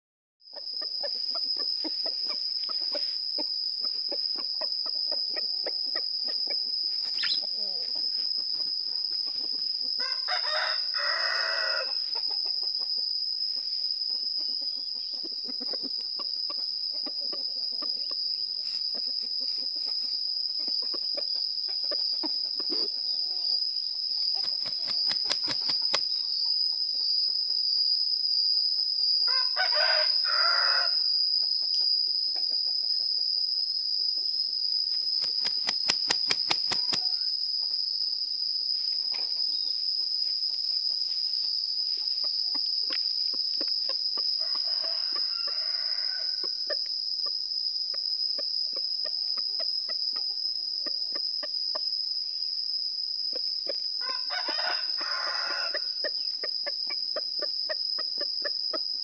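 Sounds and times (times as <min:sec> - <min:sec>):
high-pitched insect drone: 0:00.4 - 0:59.0
rooster crowing: 0:10.0 - 0:12.2, 0:29.3 - 0:31.1, 0:44.3 - 0:46.6, 0:54.0 - 0:56.0.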